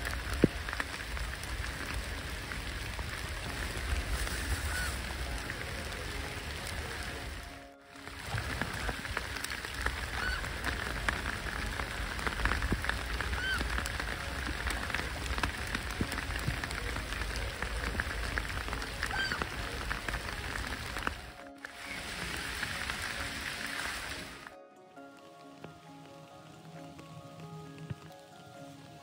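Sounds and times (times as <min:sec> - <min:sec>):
rain falling on water: 0:00.0 - 0:29.0
faint calls: 0:04.3 - 0:07.4, 0:08.2 - 0:21.1.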